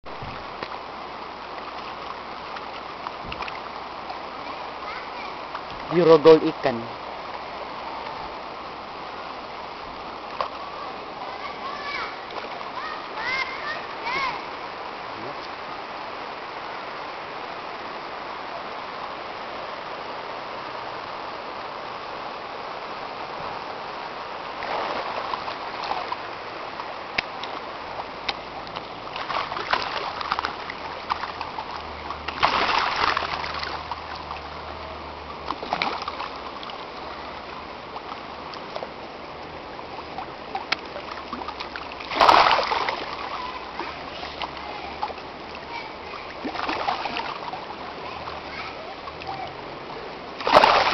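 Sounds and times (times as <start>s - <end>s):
flowing river water: 0.0s - 50.9s
person splashing in water: 32.3s - 33.8s, 41.3s - 43.3s, 46.4s - 47.4s, 50.4s - 50.9s.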